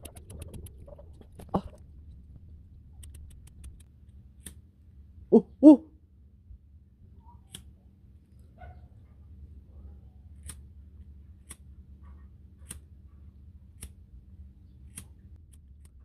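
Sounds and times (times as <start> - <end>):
short voiced calls: 5.3 - 5.8.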